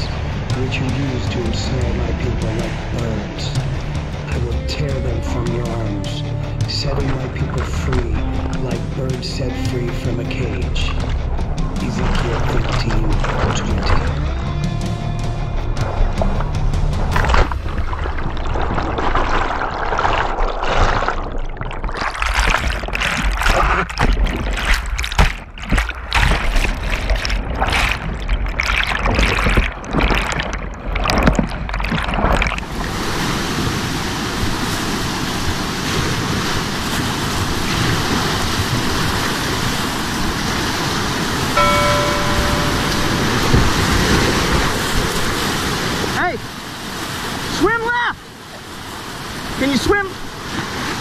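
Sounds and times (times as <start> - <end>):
muffled underwater churning: 0.0 - 51.0
river rapid rushing: 32.7 - 51.0
brief high tone: 41.6 - 43.8.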